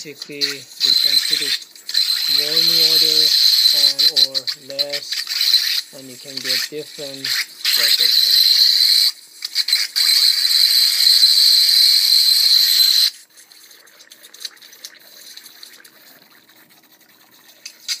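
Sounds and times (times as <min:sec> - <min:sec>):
high-pitched sonicator whine: 0:00.0 - 0:13.2.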